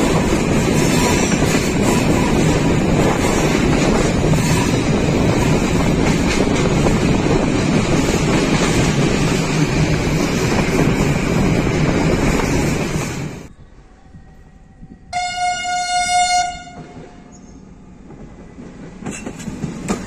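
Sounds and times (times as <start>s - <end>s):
wind buffeting microphone: 0.0s - 15.3s
train running noise: 0.0s - 20.0s.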